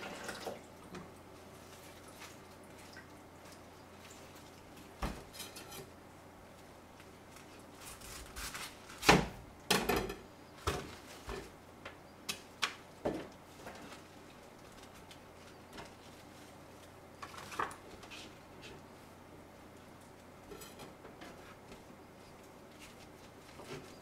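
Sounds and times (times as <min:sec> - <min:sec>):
cabbage leaves cracking and crunching: 0:07.2 - 0:09.1.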